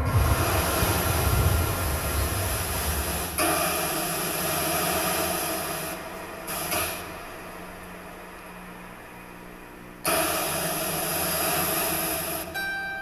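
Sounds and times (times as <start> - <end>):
low rumble over loudspeakers: 0.0 - 4.5
hiss: 0.0 - 7.1, 10.1 - 12.5.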